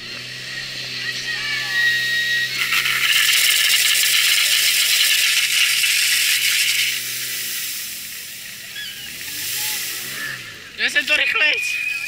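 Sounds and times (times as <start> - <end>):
pump engine hum: 0.0 - 12.0
water jet hissing from hose: 2.4 - 11.5.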